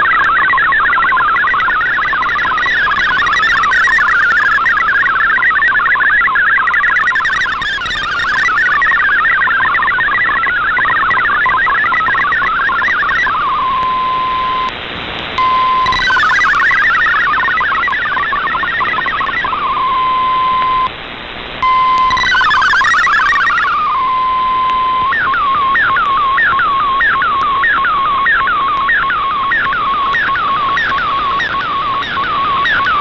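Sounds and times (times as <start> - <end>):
single steady tone: 0.0 - 14.7, 15.4 - 20.9
warbling data signal tones: 0.0 - 14.7, 15.4 - 20.9, 21.6 - 33.0.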